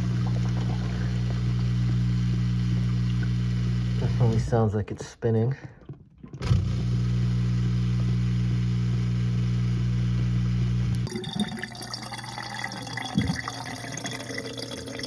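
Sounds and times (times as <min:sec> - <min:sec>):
water splashing and gurgling: 0:00.0 - 0:04.0, 0:11.1 - 0:15.0
drain pump humming: 0:00.0 - 0:04.5, 0:10.9 - 0:15.0.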